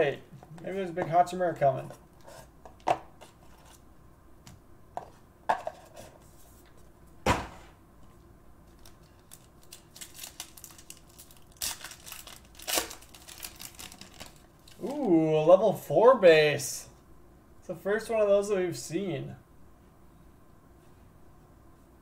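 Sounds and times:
sharp knock: 0:07.2 - 0:07.8
foil wrapper tearing and crinkling: 0:08.7 - 0:15.1.

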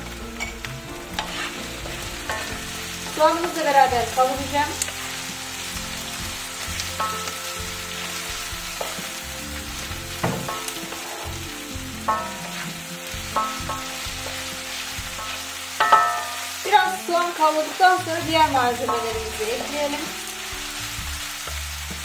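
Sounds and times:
meat and onion sizzling in pan: 0:00.0 - 0:22.0
wooden spatula scraping pan: 0:01.0 - 0:05.2, 0:07.0 - 0:16.0.

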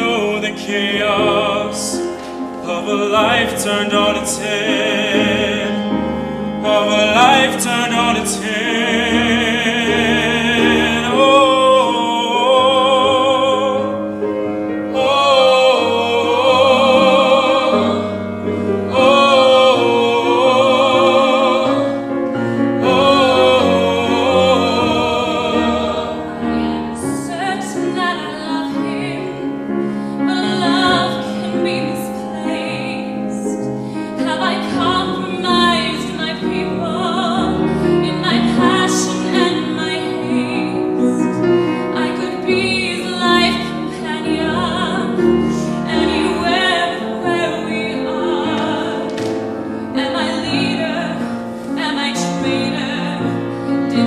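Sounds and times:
musical theatre singing: 0:00.0 - 0:54.0
piano accompaniment: 0:00.0 - 0:54.0.

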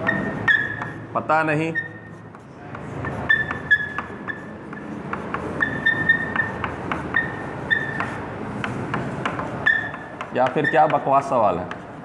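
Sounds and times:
chalk scratching on blackboard: 0:00.0 - 0:12.0
chalk squeaks: 0:00.0 - 0:12.0
chalk tapping on board: 0:00.0 - 0:12.0.

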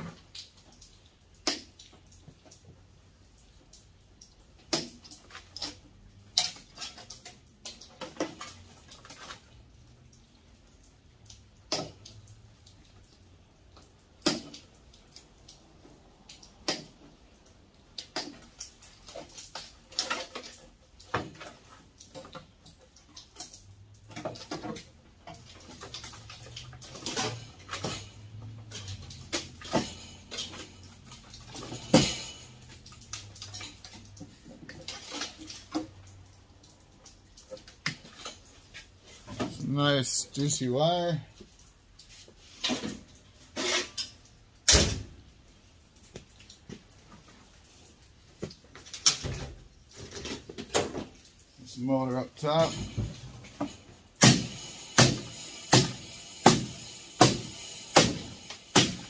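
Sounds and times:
sheet metal clanking: 0:24.2 - 0:34.1.

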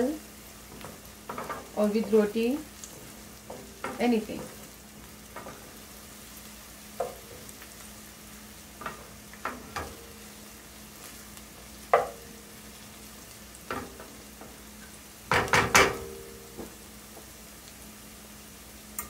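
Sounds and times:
onions sizzling: 0:00.0 - 0:19.0
wooden spoon knocking on metal pan: 0:00.7 - 0:04.7, 0:07.0 - 0:07.3, 0:08.8 - 0:10.1, 0:11.9 - 0:12.3, 0:15.3 - 0:16.8.

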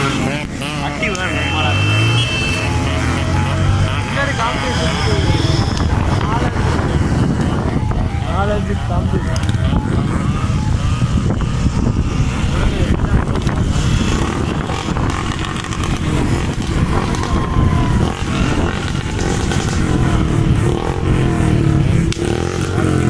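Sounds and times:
motorcycles riding: 0:00.0 - 0:23.0
wind rumble on microphone: 0:05.0 - 0:23.0.

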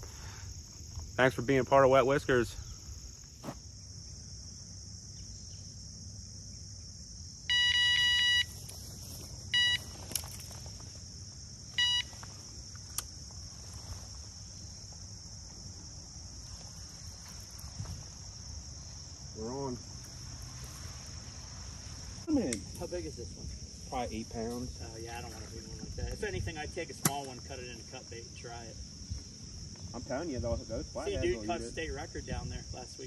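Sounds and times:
insects chorus: 0:00.0 - 0:33.0
bite alarm beeps: 0:07.5 - 0:08.6, 0:09.5 - 0:09.9, 0:11.8 - 0:12.1.

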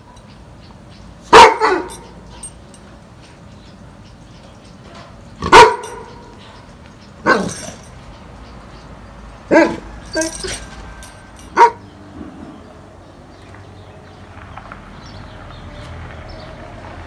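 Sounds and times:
dog barking: 0:01.3 - 0:02.5, 0:05.4 - 0:07.6, 0:09.5 - 0:10.6, 0:11.5 - 0:11.8.

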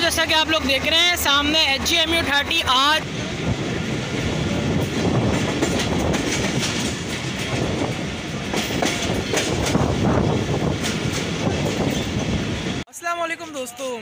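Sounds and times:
train coach rumble: 0:00.0 - 0:12.8
wheels clacking over rail joints: 0:03.1 - 0:12.8.

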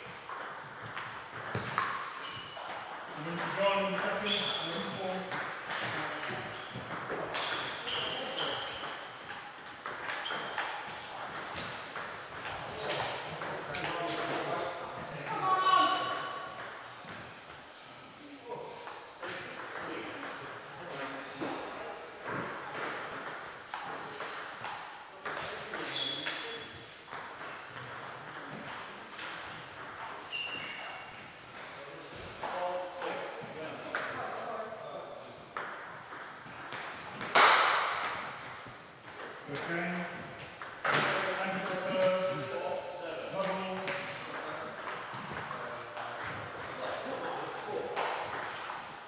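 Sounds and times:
short high squeaks: 0:04.2 - 0:04.8, 0:25.8 - 0:26.7, 0:30.3 - 0:31.1.

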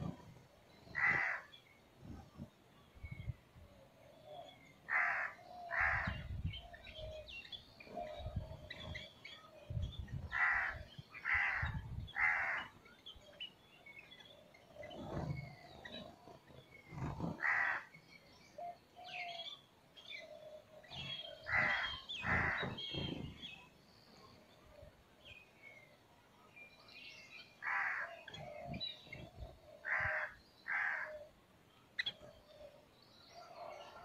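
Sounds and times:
harsh bird calls: 0:00.0 - 0:01.8, 0:04.3 - 0:12.8, 0:14.3 - 0:24.4, 0:27.5 - 0:31.4
faint bird chirps and twitters: 0:00.0 - 0:34.0.

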